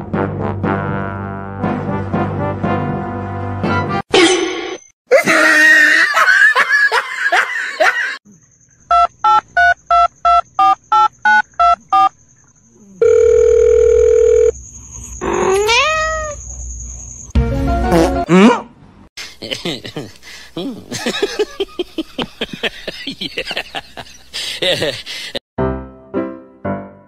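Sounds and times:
steady telephone tone: 13.0s - 14.6s.

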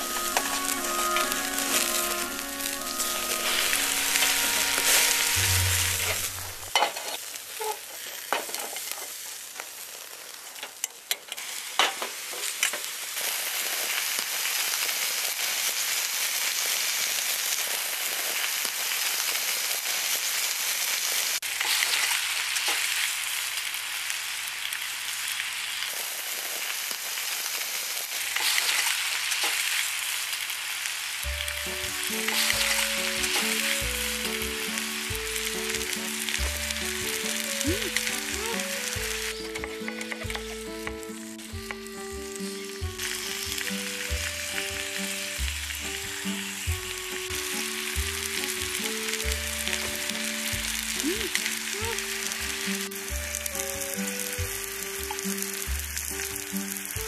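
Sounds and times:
background music: 0.0s - 6.7s, 31.2s - 57.0s
pork sizzling on a grill: 0.0s - 57.0s.

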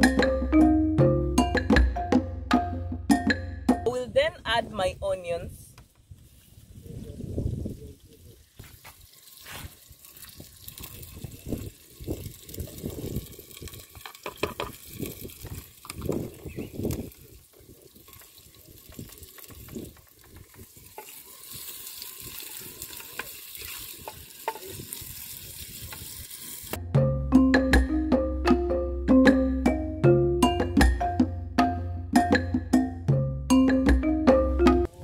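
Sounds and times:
onions sizzling in oil: 6.0s - 26.8s.

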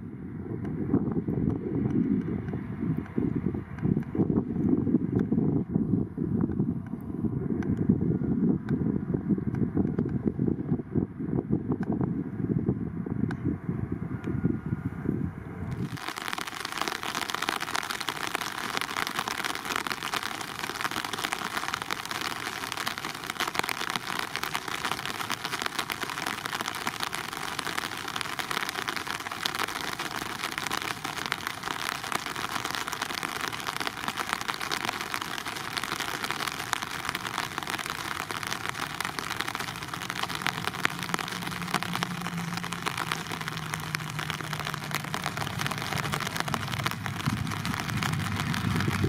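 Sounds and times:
steady rain: 15.6s - 49.0s.

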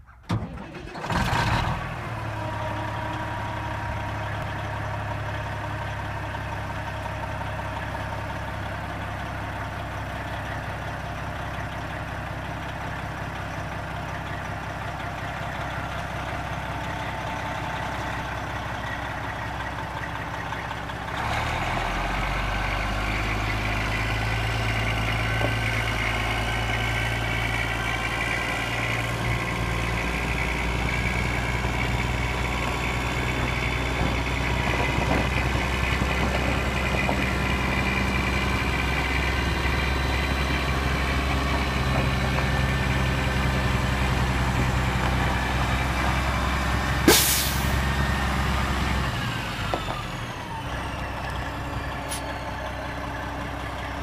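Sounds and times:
diesel truck engine idling: 0.6s - 54.0s
high engine whine: 14.8s - 54.0s.

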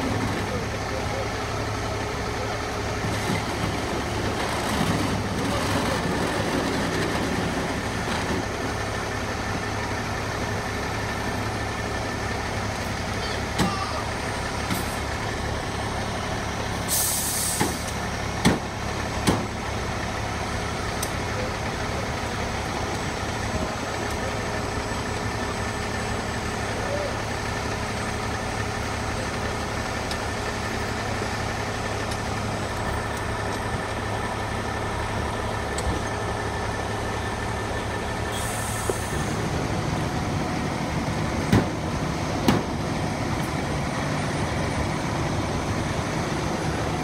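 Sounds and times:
diesel engine idling: 0.0s - 47.0s
short hiss: 16.9s - 17.9s
sharp knocks: 18.4s - 19.5s, 42.4s - 42.7s.

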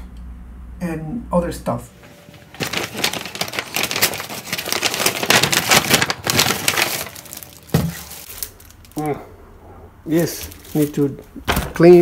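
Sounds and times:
shopping bags rustling: 2.2s - 9.0s, 10.1s - 11.2s.

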